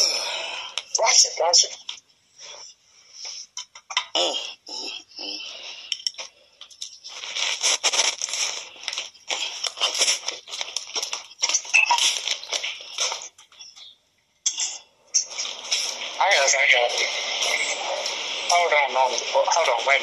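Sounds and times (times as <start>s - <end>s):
loud rustling and crinkling: 6.2s - 13.6s
person speaking: 14.6s - 20.0s.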